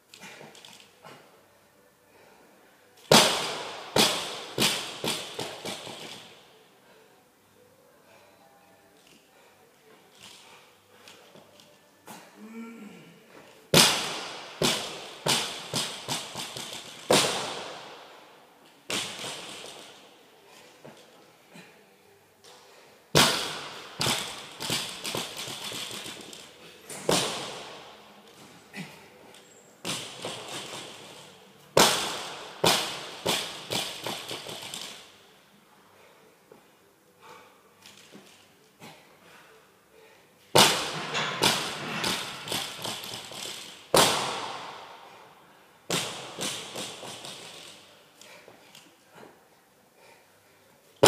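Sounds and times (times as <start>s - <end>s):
person grunting: 12.4s - 13.2s
barbell bouncing and rattling: 23.2s - 27.6s, 40.6s - 44.7s.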